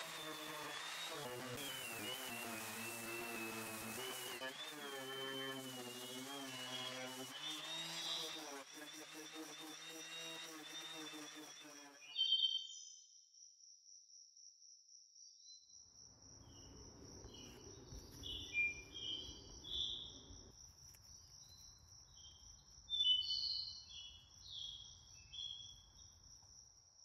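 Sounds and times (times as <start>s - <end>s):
small birds chirping: 16.6s - 20.4s.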